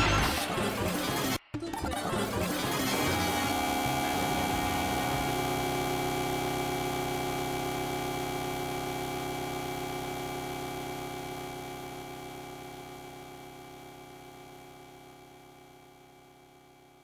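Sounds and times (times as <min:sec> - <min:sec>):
fast pulsing low buzz: 0:02.2 - 0:13.1
sustained buzzing drone: 0:02.5 - 0:12.2.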